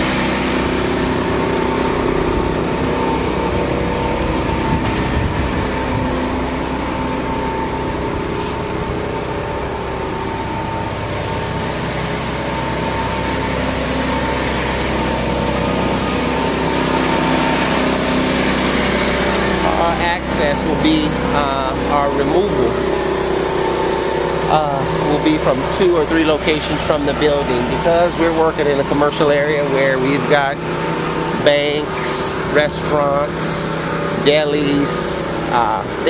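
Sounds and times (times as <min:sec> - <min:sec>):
small engine running: 0:00.0 - 0:36.0.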